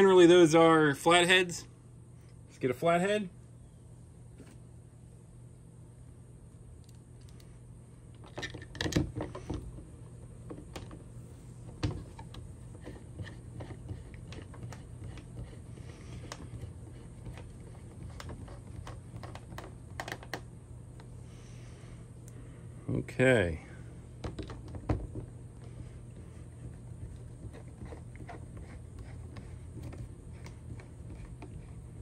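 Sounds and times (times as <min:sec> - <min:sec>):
screwdriver clicking and scraping: 0:12.2 - 0:20.4.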